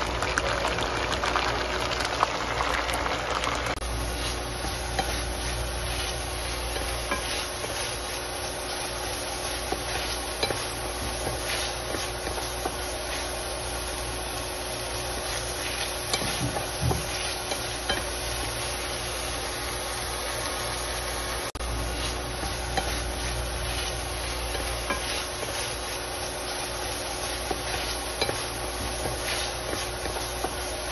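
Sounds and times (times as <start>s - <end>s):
vegetables sizzling in oil: 0.0s - 30.9s
wooden spatula knocking on pan: 16.1s - 17.2s.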